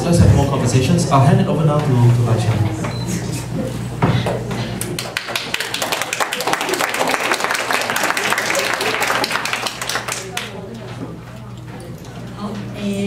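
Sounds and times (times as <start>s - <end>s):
audience applauding: 4.8s - 10.7s.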